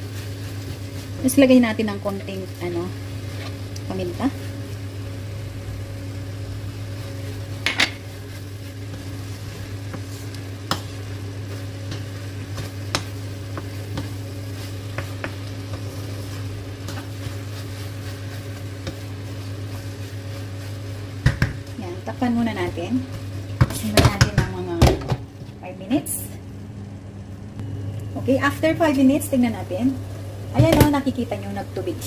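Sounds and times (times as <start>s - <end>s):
food sizzling in a wok: 0.0s - 24.3s
steady low hum: 0.0s - 32.0s
wooden spoon scraping a pan: 6.9s - 21.2s.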